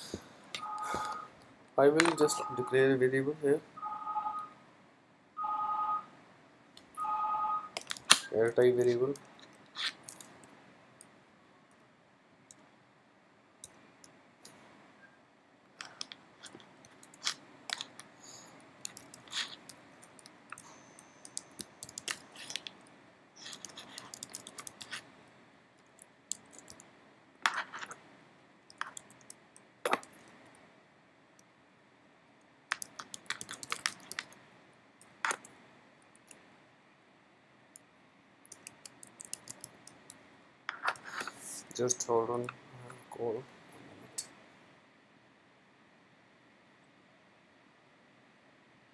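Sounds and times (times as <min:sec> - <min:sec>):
keyboard keystroke clicks: 0:21.2 - 0:22.2.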